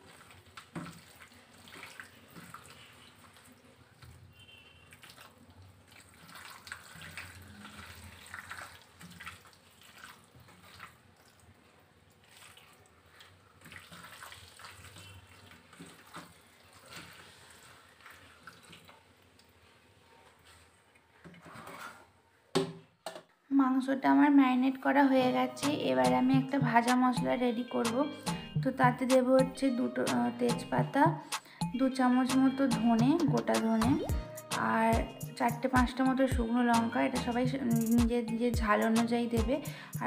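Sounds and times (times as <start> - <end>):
wet squelches of marinating chicken: 0.0 - 21.2.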